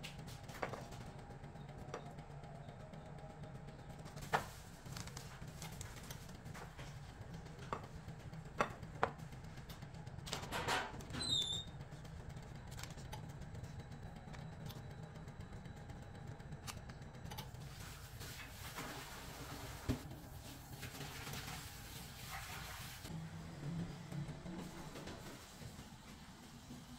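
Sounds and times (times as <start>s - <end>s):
steady low hum: 0.0s - 18.5s.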